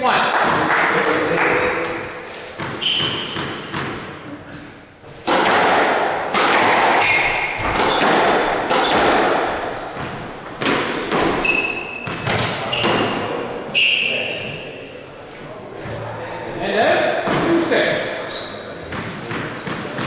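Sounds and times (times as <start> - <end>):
shoes squeaking on wooden floor: 2.6 - 5.2, 7.0 - 14.7
squash ball cracks: 5.2 - 13.4.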